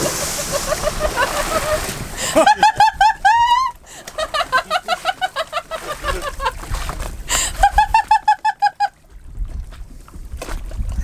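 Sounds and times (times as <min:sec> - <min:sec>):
high-pitched laughter: 0:00.2 - 0:06.6, 0:07.5 - 0:09.0.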